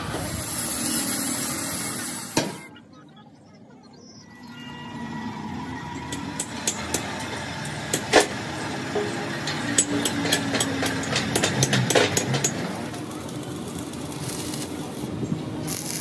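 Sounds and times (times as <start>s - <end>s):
mechanical hum: 0.0s - 16.0s
steel parts clinking and knocking: 6.0s - 13.0s.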